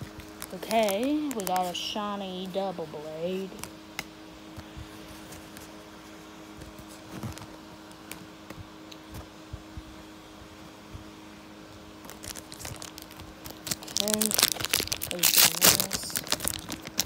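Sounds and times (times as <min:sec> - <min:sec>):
trading cards rustling: 0:00.0 - 0:08.3, 0:12.0 - 0:17.0
steady low hum: 0:00.0 - 0:17.0.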